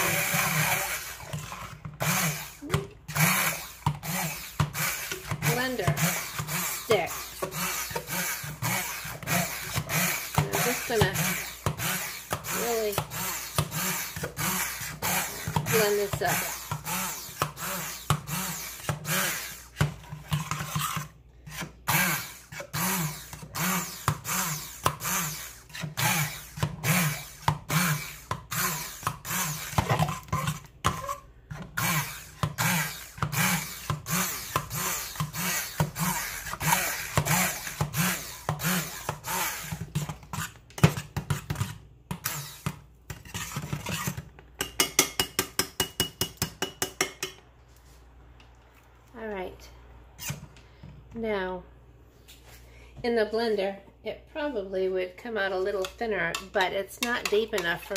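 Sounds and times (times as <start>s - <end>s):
stick blender in thick sauce: 0.0s - 44.2s.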